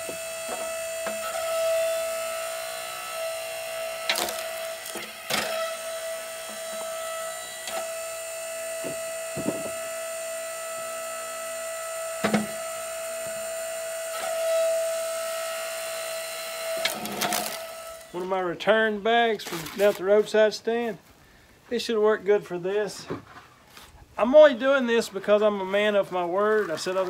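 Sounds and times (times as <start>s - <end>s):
log splitter motor whining: 0.0s - 18.4s
wooden knocks and clunks: 8.8s - 9.8s.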